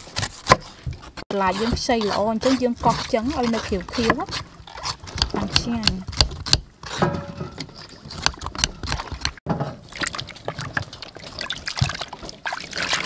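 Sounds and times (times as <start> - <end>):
knife scraping gourd skin: 0.0 - 9.4
vegetables sloshing in water: 8.8 - 13.0.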